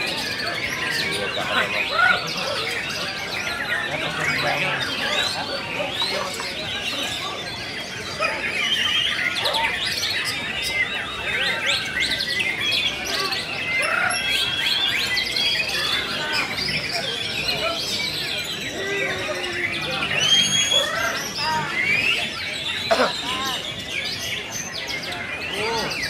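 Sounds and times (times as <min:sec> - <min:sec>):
songbird singing whistles and chirps: 0:03.1 - 0:22.8.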